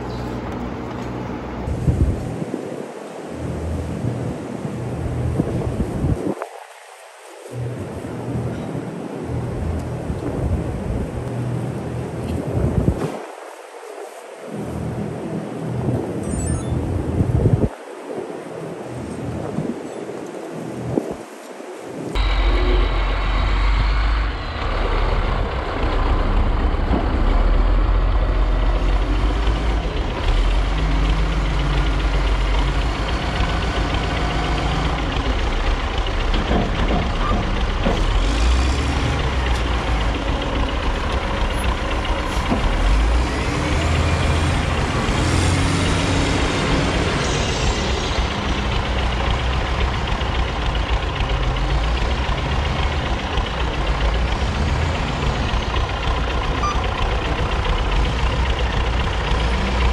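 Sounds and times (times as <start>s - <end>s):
wheel loader diesel engine: 0.0s - 2.5s, 22.2s - 59.9s.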